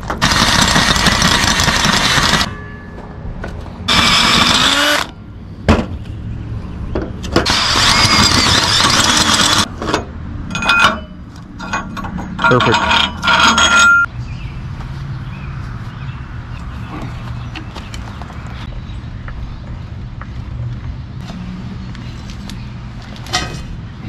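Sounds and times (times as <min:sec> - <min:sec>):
power drill boring into steel: 0:03.9 - 0:05.1, 0:07.4 - 0:09.7
metal clinks: 0:10.5 - 0:14.1.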